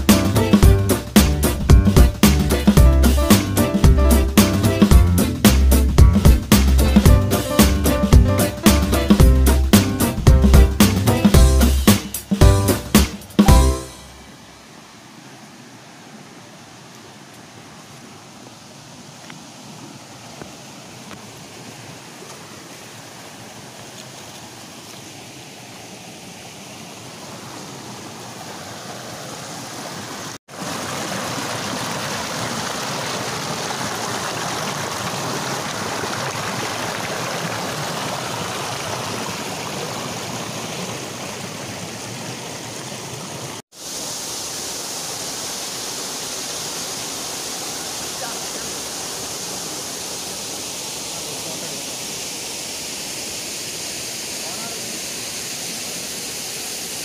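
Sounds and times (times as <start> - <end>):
waterfall rushing over rocks: 13.0 - 57.0.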